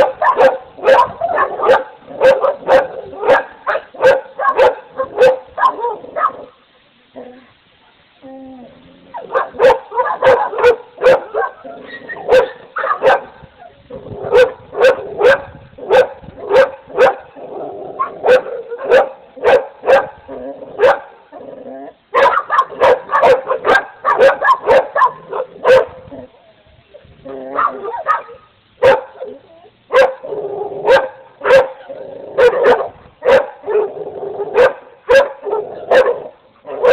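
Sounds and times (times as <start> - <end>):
dogs barking: 0.0 - 6.5, 9.1 - 13.4, 14.2 - 17.3, 18.0 - 20.2, 20.8 - 21.2, 22.1 - 26.0, 27.5 - 29.3, 29.9 - 36.9.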